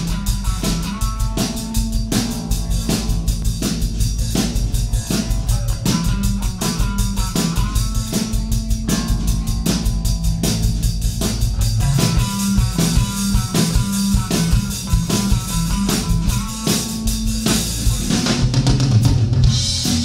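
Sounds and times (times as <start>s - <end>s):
drum kit beat: 0.0s - 20.0s
electric bass: 0.0s - 20.0s
keyboards: 0.0s - 20.0s.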